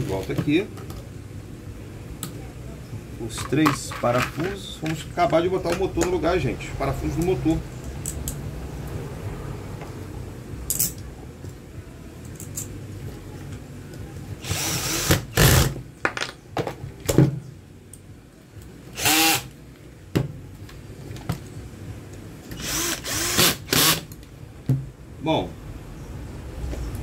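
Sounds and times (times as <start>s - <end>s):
cordless drill motor whine: 14.4s - 15.5s, 19.0s - 19.5s, 22.6s - 24.0s.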